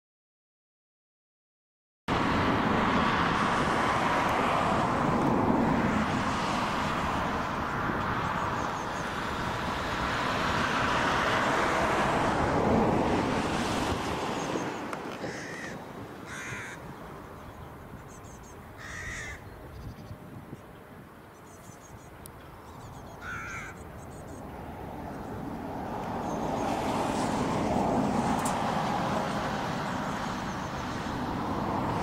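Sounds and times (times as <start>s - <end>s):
bird calls: 14.4s - 24.6s.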